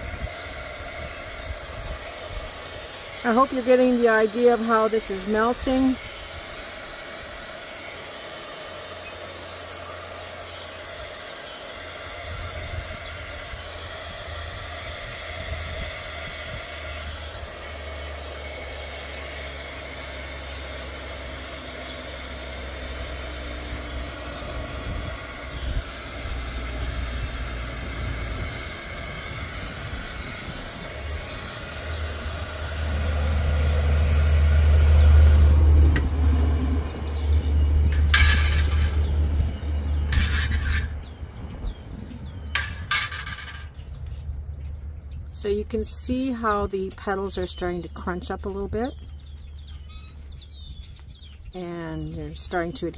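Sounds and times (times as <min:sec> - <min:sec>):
wind rumble on microphone: 0:00.0 - 0:02.6, 0:12.2 - 0:17.0, 0:24.4 - 0:33.4, 0:35.4 - 0:47.8, 0:48.5 - 0:52.9
heat gun blowing hiss: 0:00.0 - 0:39.4, 0:40.0 - 0:41.0, 0:42.5 - 0:43.7.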